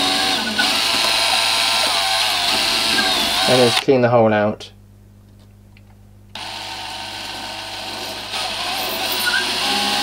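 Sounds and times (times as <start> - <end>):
power drill running: 0.0 - 3.8, 6.3 - 10.0.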